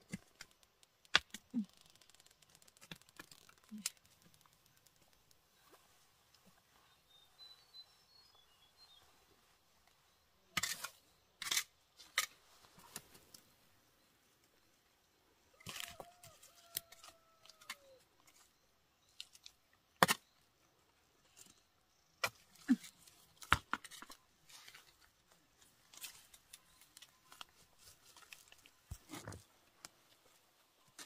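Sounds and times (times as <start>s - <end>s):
plants torn out by roots: 0.0s - 6.4s, 15.6s - 20.4s, 22.2s - 31.0s.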